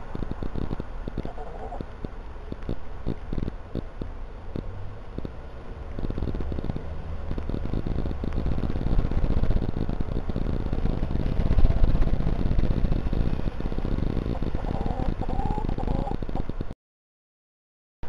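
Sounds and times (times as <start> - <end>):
low rumble: 0.0 - 16.6
hens pecking and scratching: 0.4 - 2.0.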